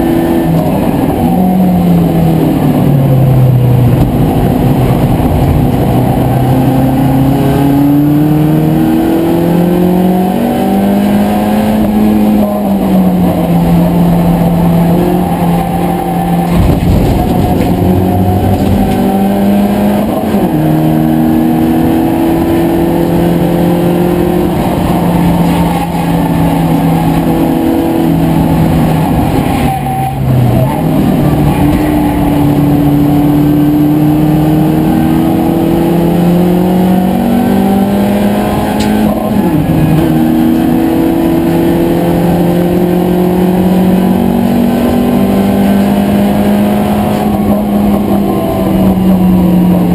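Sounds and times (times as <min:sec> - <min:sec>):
race car engine under load: 0:00.0 - 0:49.9.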